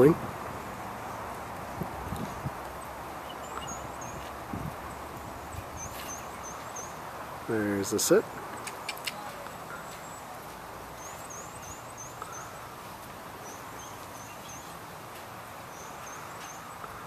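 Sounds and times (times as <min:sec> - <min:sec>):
outdoor ambience hiss: 0:00.0 - 0:17.0
small bird chirping: 0:01.0 - 0:07.0, 0:10.9 - 0:12.7, 0:13.4 - 0:14.8, 0:15.7 - 0:17.0.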